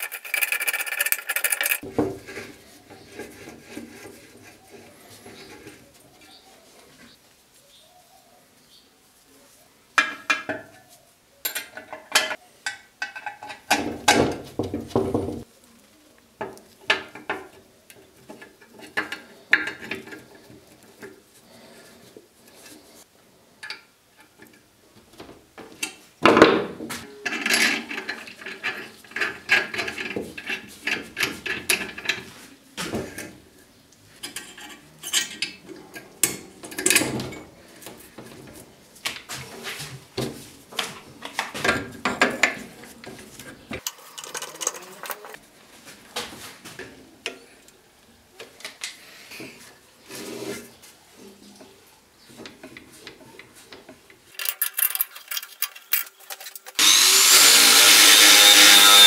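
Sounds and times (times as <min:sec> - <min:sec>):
metal parts and tools clinking: 0:00.0 - 0:04.2, 0:11.4 - 0:13.9, 0:34.2 - 0:37.5, 0:43.8 - 0:45.4, 0:54.3 - 0:57.0.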